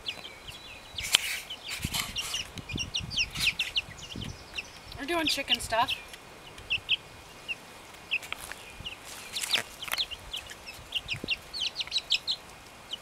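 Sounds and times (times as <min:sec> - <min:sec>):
chicks peeping: 0:00.0 - 0:13.0
rustle: 0:00.0 - 0:13.0.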